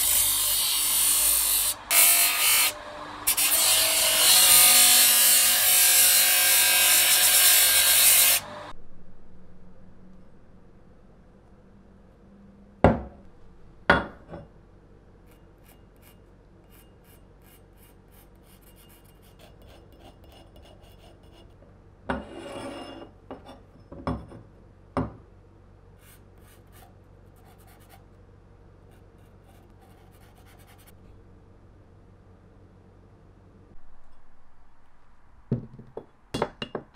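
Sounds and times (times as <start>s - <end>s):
marker pen scratching on metal: 15.3s - 21.6s.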